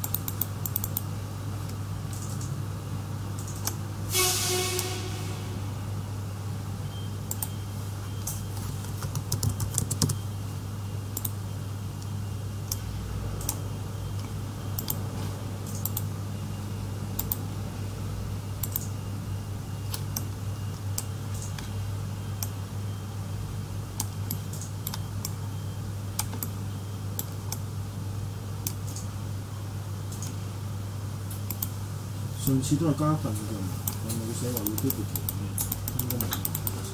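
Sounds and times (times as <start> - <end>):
mouse and keyboard clicking: 0.0 - 1.1, 3.4 - 3.8, 8.3 - 10.2, 11.2 - 11.4, 14.2 - 15.0, 17.2 - 17.4, 18.6 - 18.9, 24.0 - 25.4, 26.2 - 26.6, 30.1 - 30.4, 31.3 - 31.7, 34.6 - 36.8
low hum: 4.0 - 8.2.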